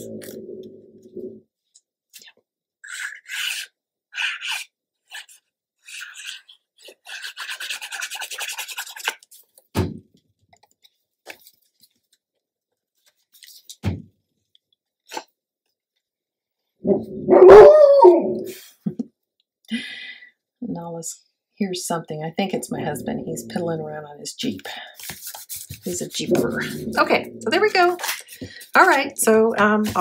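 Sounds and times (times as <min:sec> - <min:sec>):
paper rubbing and scraping: 0:07.0 - 0:09.5, 0:25.0 - 0:30.0.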